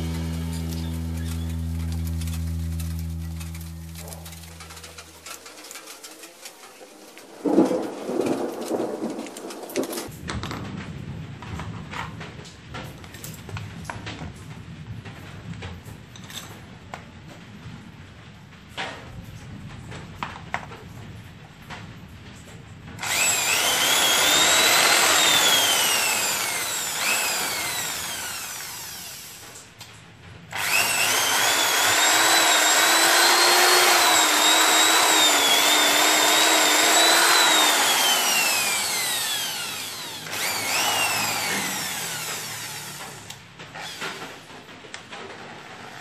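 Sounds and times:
electric drill motor whining: 0.0 - 5.8, 23.0 - 29.6, 30.5 - 44.4.

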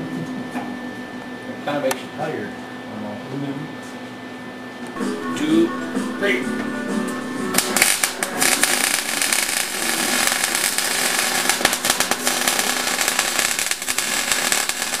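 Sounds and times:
welder arc crackling and popping: 7.5 - 15.0.

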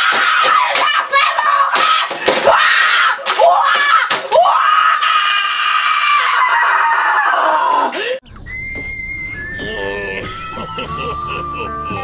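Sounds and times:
boy screaming: 0.0 - 8.0
thin high tone: 8.3 - 11.4.

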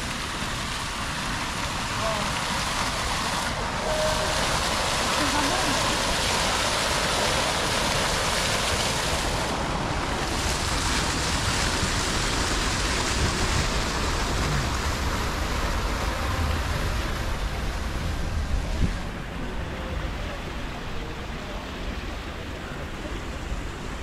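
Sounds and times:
fountain water splashing into pool: 0.0 - 24.0.

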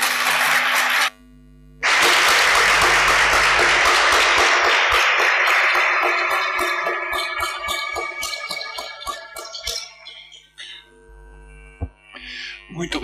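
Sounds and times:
audience applauding: 0.0 - 1.1, 1.8 - 10.0.

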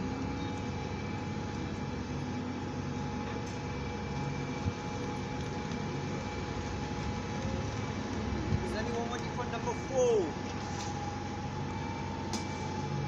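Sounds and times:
bus diesel engine drone: 0.0 - 9.1, 9.8 - 13.0.

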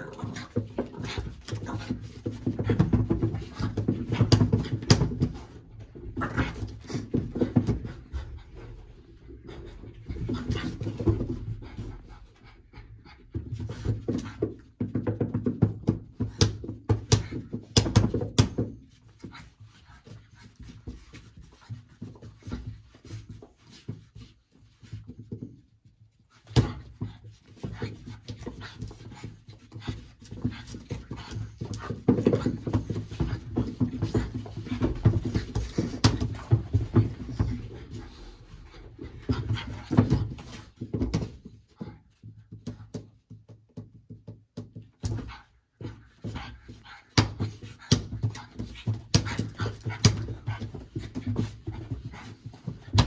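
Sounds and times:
puppy panting: 45.1 - 53.0.

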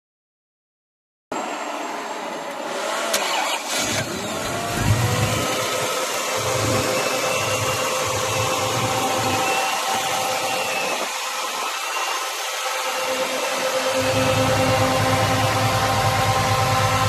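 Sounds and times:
engine cranking with clicks: 2.9 - 12.9
engine idle rumble: 3.7 - 17.0.

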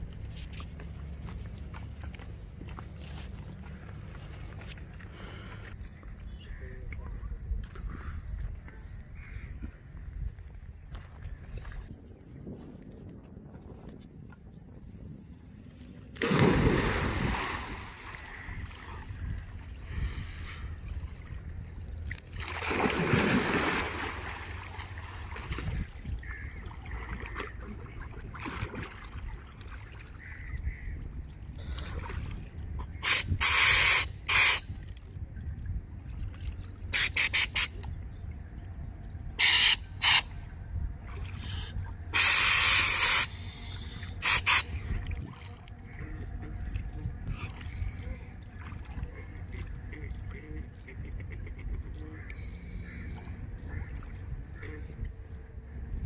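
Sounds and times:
water splashing: 16.2 - 19.3, 20.9 - 31.0
compressed air hissing: 33.0 - 34.7, 39.4 - 40.3, 42.2 - 44.8.

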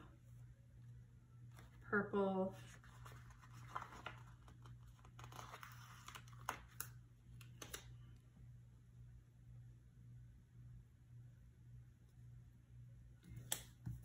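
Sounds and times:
paper sticker sheet crinkling: 2.7 - 7.9.

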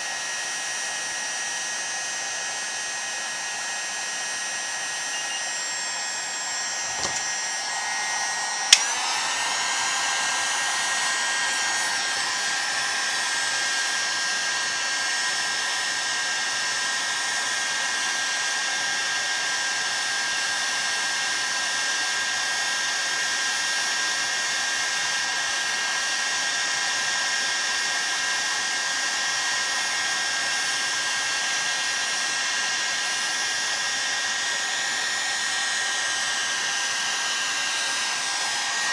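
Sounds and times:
heat gun blowing: 0.0 - 38.9
sharp click: 6.9 - 7.3.

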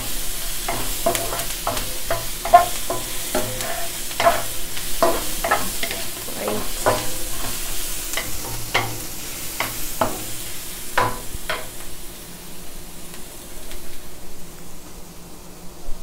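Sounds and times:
wooden spatula scraping pan: 0.0 - 10.4
onions sizzling in hot oil: 0.0 - 15.2.

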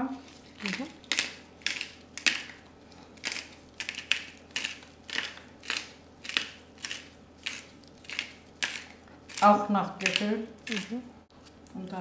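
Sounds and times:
pepper mill grinding: 0.4 - 2.6, 3.2 - 11.0.

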